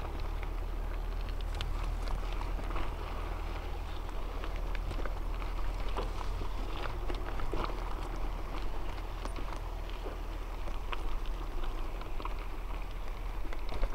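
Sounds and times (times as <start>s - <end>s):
bike rattling: 0.0s - 13.9s
bike tyres crunching on gravel: 0.0s - 13.9s.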